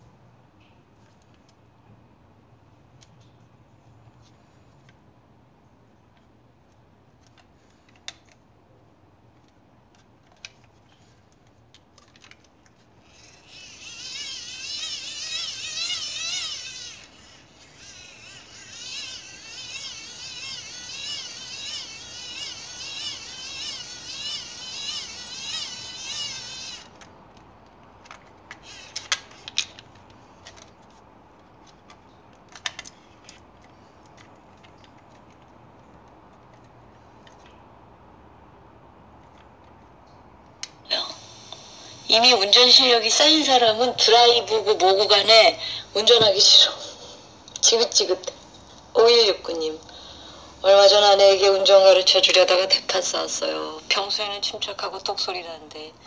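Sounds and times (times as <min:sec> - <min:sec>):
hand-crank dynamo whine: 0:13.0 - 0:27.0.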